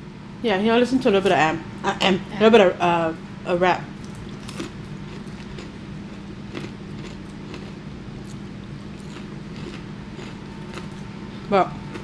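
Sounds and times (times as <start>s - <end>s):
steady low hum: 0.0s - 12.0s
crunchy chips chewing: 4.0s - 12.0s.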